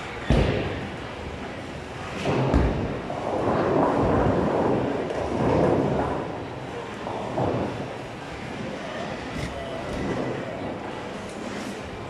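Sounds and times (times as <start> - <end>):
bowling ball rolling down lane: 2.1 - 10.8.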